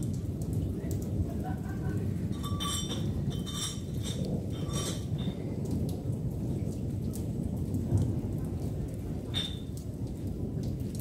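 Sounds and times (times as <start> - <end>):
heavy rain: 0.0 - 11.0
drops plinking on something hard: 2.3 - 5.4, 9.3 - 9.7.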